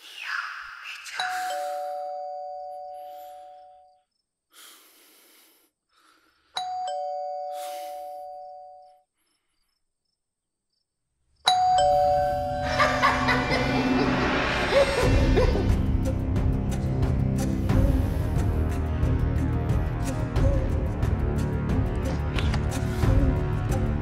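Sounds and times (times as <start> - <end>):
electric doorbell chime: 1.5 - 3.1, 6.6 - 8.9, 11.5 - 12.7.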